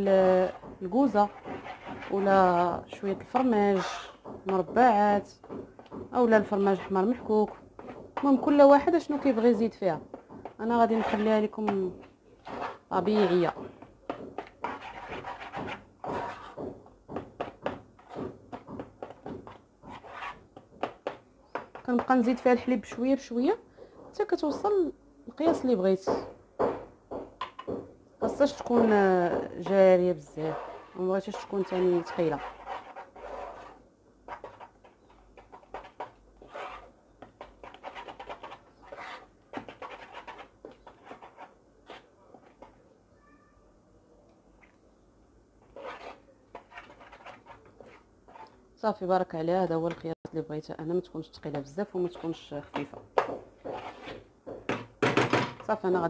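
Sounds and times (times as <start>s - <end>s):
spatula stirring mashed potato: 0.0s - 23.2s, 23.9s - 42.9s, 45.6s - 48.6s, 51.5s - 54.8s
wooden spoon scraping saucepan: 0.2s - 16.8s, 17.4s - 20.9s, 28.3s - 42.8s, 45.6s - 48.6s, 51.8s - 54.3s.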